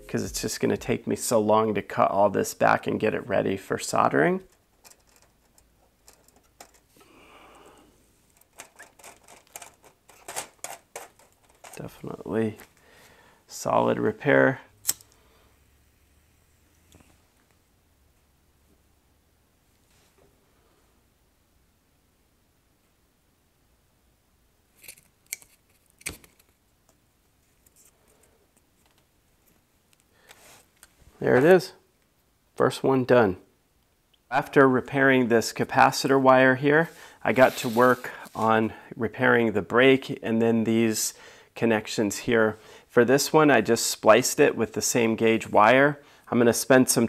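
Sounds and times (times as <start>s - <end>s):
soft hiss: 11.3s - 39.4s.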